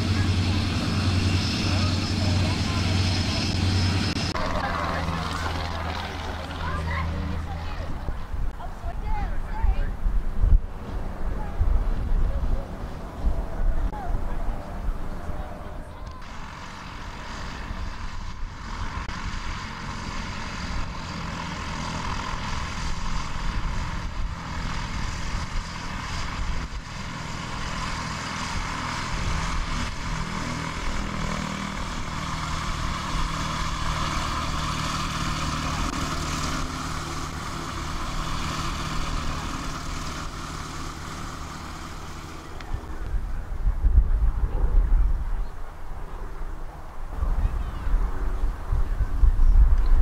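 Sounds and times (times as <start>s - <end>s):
light aircraft engine running: 0.0s - 50.0s.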